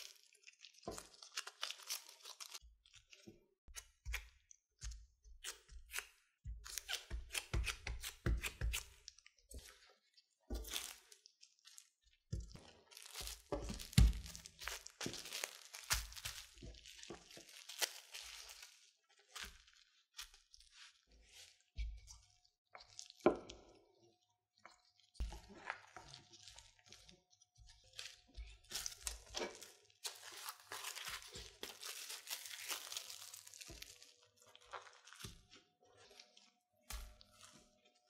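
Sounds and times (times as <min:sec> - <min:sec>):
cling wrap crinkling: 0:00.0 - 0:03.2, 0:12.6 - 0:20.8, 0:27.9 - 0:36.5.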